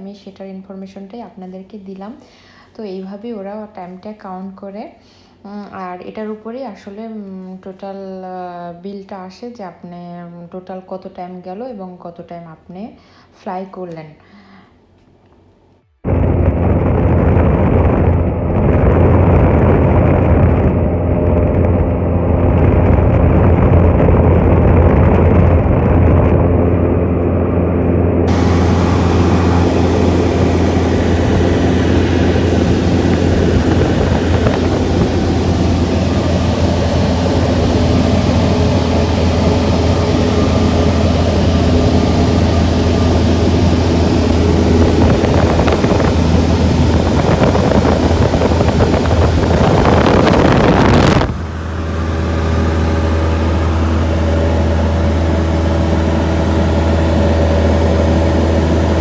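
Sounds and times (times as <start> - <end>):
rushing noise: 16.0 - 59.0
light aircraft engine droning: 16.1 - 59.0.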